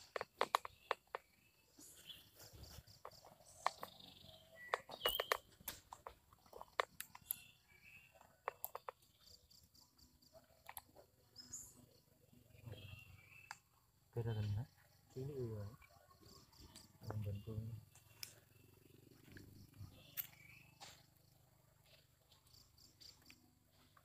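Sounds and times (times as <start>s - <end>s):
small clicks and taps: 0.0s - 1.3s, 4.7s - 7.4s, 8.2s - 9.1s
high chirps: 0.1s - 6.1s.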